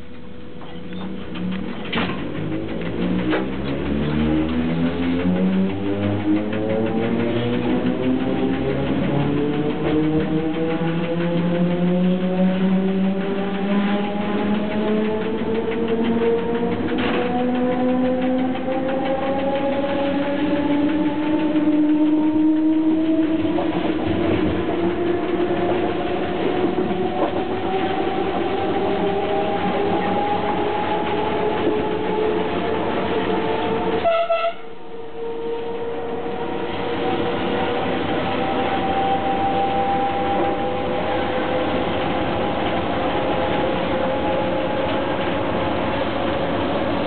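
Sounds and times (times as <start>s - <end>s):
traction motors whining: 0.0s - 34.0s, 35.1s - 47.0s
rolling rail noise: 0.0s - 47.0s.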